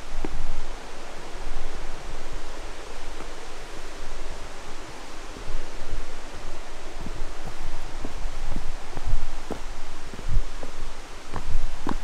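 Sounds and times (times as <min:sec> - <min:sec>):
footsteps on rough trail: 0:00.0 - 0:00.8, 0:04.2 - 0:12.0
steady rushing noise: 0:00.0 - 0:12.0.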